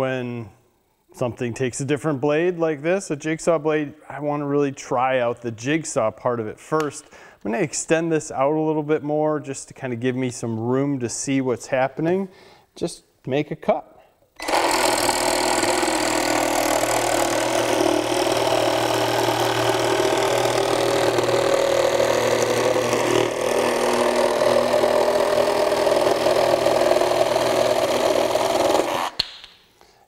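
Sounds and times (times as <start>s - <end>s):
reciprocating saw cutting wood: 14.4s - 29.2s.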